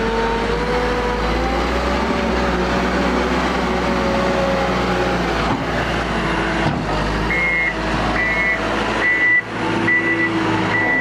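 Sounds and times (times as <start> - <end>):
diesel engine running: 0.0 - 11.0
reversing alarm beeping: 7.3 - 11.0.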